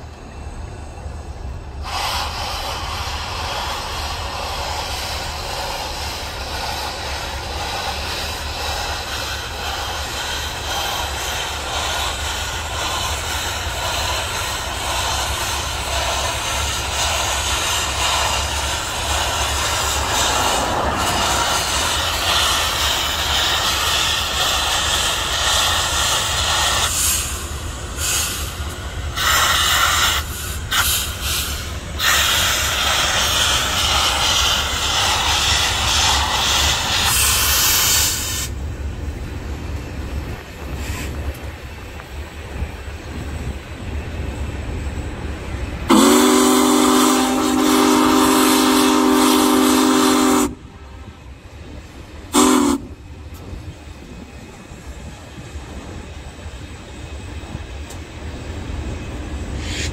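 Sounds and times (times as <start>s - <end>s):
wind and road noise: 0.0s - 45.9s, 50.4s - 59.9s
steam hissing: 0.0s - 59.9s
steam locomotive running: 0.0s - 59.9s.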